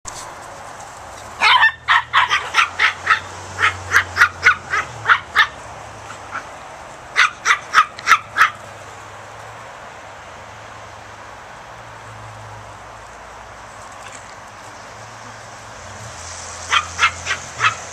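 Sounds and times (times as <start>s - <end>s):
small dog yapping: 1.4s - 5.6s, 7.2s - 8.6s, 16.7s - 17.9s.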